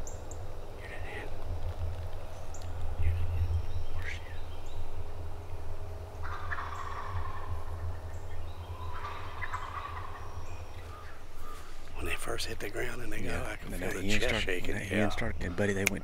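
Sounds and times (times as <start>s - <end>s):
turkeys gobbling: 5.9s - 15.8s.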